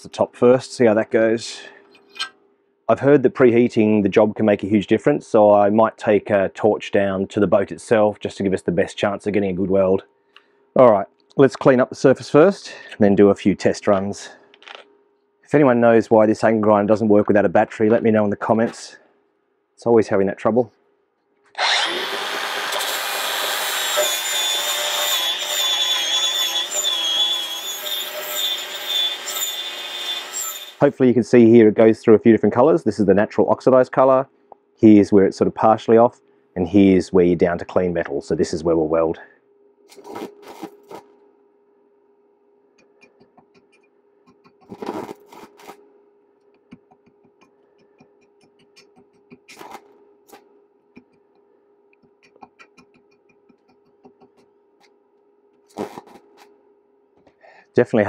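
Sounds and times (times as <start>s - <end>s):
angle grinder grinding metal: 21.6s - 30.8s
welding arc crackling and popping: 44.4s - 45.8s, 48.6s - 49.8s.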